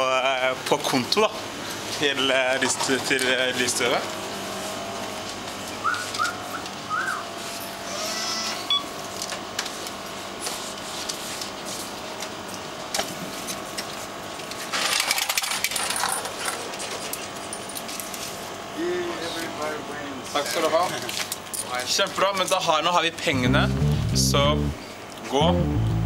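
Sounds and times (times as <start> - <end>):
short rising squeaks: 7.8 - 8.9
steady hum: 23.2 - 26.0.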